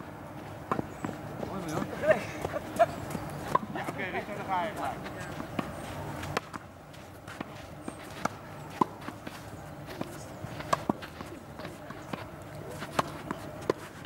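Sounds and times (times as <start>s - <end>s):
footsteps scuffing on clay: 0.3s - 14.0s
tennis ball struck by rackets: 5.4s - 6.6s, 7.3s - 14.0s.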